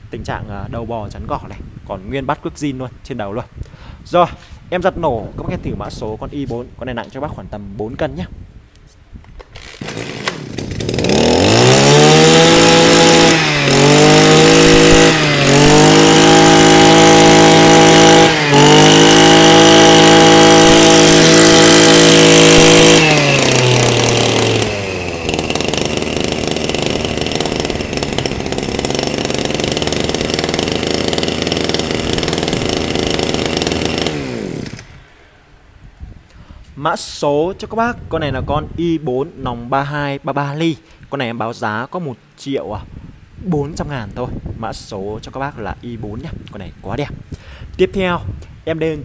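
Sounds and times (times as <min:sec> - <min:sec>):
brush cutter engine revving: 0:09.4 - 0:35.3.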